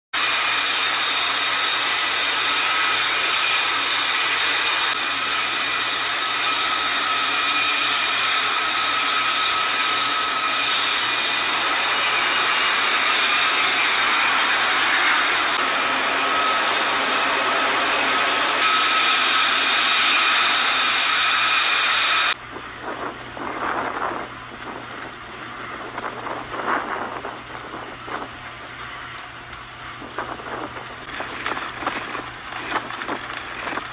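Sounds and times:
turbine engine whine: 0.2s - 33.9s
wind rush on microphone: 19.3s - 33.9s.

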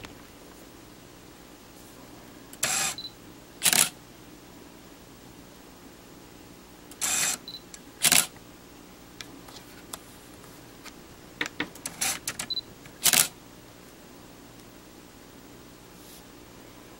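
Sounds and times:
autofocus motor buzzing: 2.6s - 3.9s, 7.0s - 8.3s
small clicks: 11.4s - 13.3s.

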